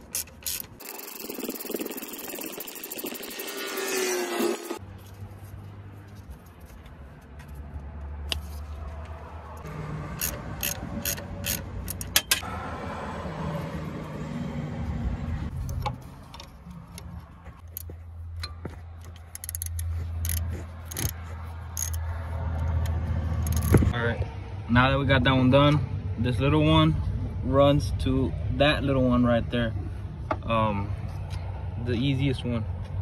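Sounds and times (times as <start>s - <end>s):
metallic clicks and rubbing: 0.0s - 3.5s, 9.6s - 12.4s, 15.5s - 24.0s.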